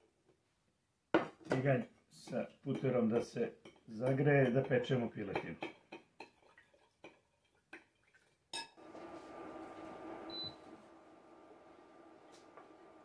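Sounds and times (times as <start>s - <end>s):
spoon clinking against glass bowl: 8.5s - 8.8s.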